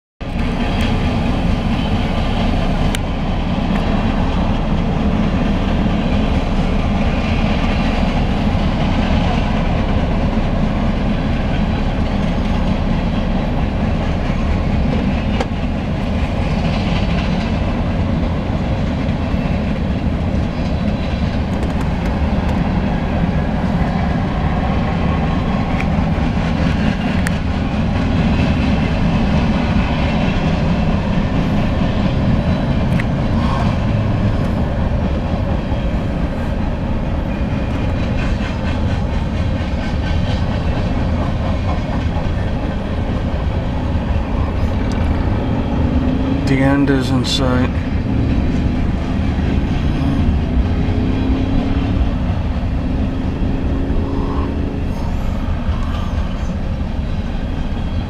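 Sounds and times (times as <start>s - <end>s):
rail clicks: 0.2s - 58.0s
train wheels rumbling on rails: 0.2s - 58.0s.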